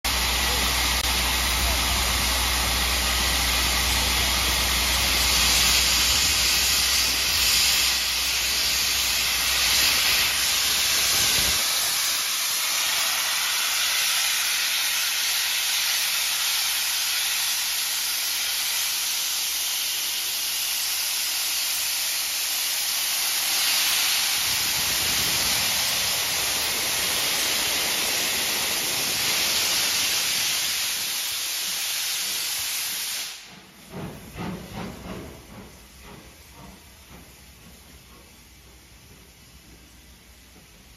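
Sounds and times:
steam hissing from locomotive: 0.1s - 40.9s.

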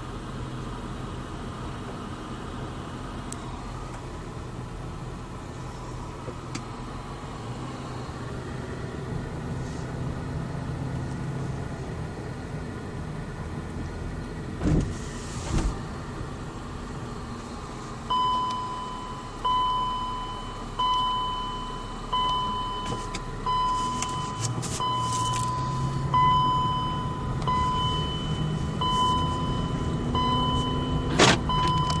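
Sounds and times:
car engine: 0.0s - 32.0s
road noise: 0.0s - 32.0s
car warning chime: 18.1s - 32.0s.

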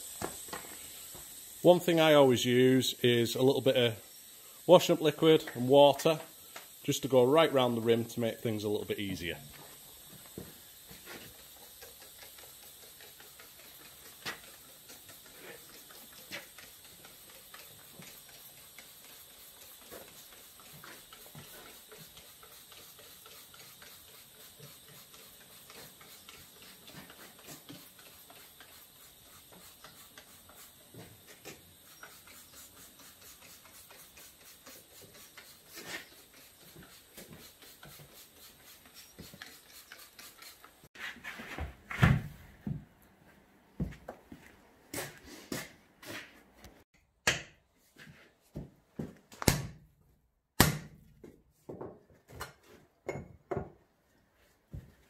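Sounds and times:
spray bottle spritzes: 9.6s - 40.8s.

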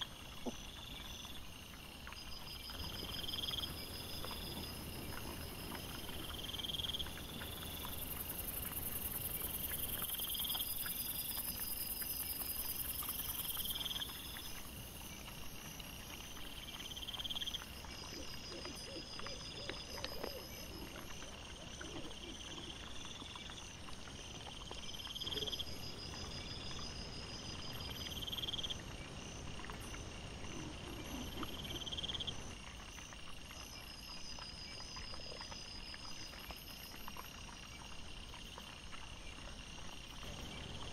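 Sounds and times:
crickets chirping: 0.0s - 40.9s.

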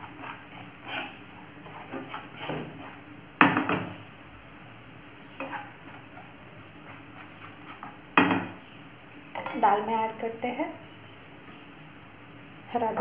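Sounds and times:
spatula stirring in a pan: 0.0s - 9.9s
masala sizzling in a pan: 0.0s - 13.0s
utensil knocking on pan: 3.4s - 3.9s, 8.2s - 8.6s.

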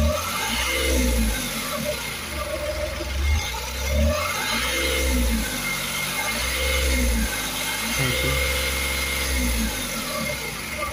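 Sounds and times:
diesel engine idling unevenly: 0.0s - 10.9s.

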